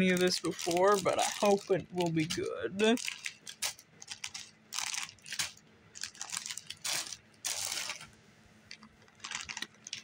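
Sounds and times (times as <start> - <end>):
plastic packets crinkling: 0.0 - 10.0.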